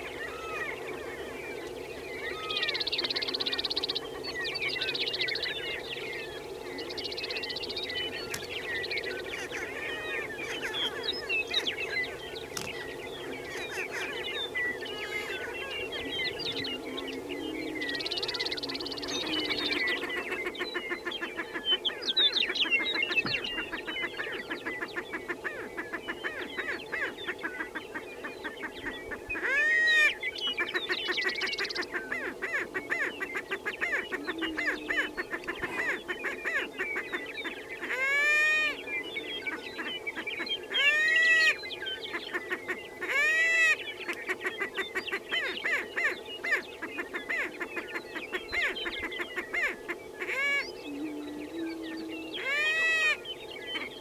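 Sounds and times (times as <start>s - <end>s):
low booming bird chorus: 0.0s - 27.4s
rapid bird cackling: 9.1s - 11.1s, 18.3s - 38.8s, 39.5s - 51.1s.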